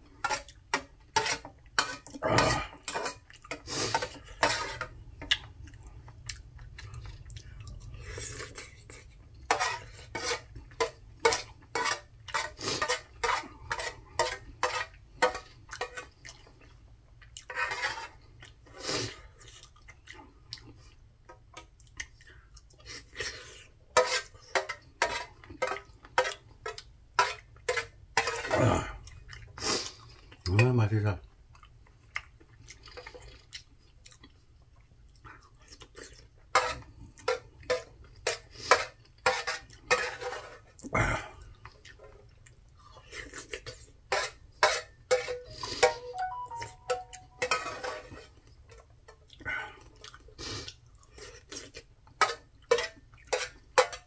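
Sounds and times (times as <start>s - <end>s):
utensils clinking on a dish: 43.7s - 48.4s.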